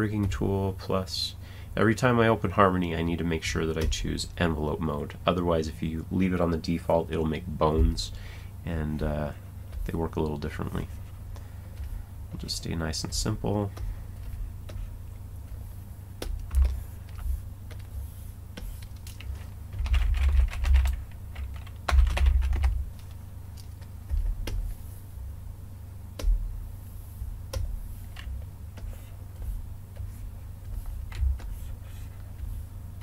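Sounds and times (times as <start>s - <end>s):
keyboard typing: 18.6s - 24.6s.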